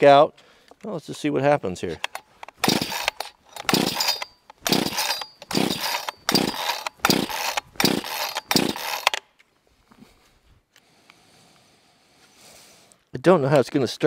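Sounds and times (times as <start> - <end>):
chainsaw pull-starter: 1.9 - 9.3
engine turning over: 2.1 - 9.2.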